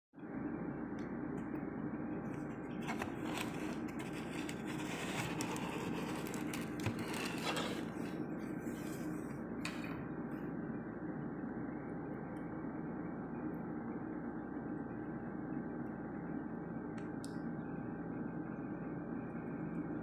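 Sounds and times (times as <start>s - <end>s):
background hum: 0.2s - 20.0s
cardboard box scraping and crackling: 2.8s - 8.2s.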